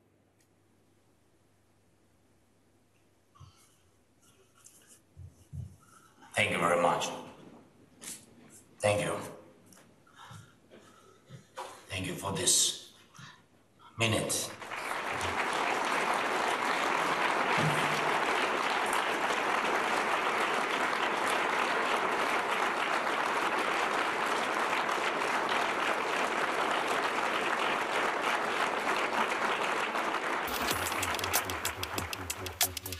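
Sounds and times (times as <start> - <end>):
audience applauding: 14.4 - 32.9.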